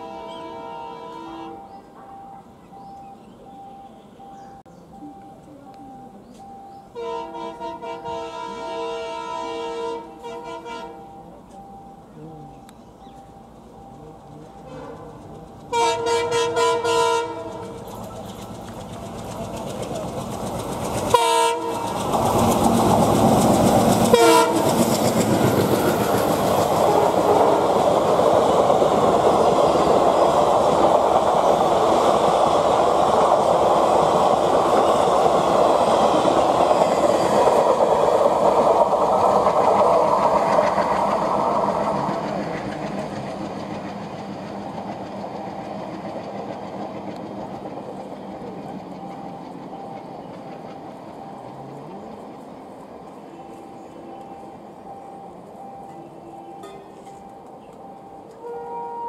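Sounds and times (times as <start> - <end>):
train horn blasts: 0.0 - 1.7, 6.9 - 11.1, 14.6 - 17.8, 21.1 - 22.0, 24.0 - 24.9, 58.3 - 59.0
diesel locomotive engine: 0.0 - 59.0
coaches rolling noise: 12.4 - 58.5
train wheels clickety-clack: 13.9 - 55.2.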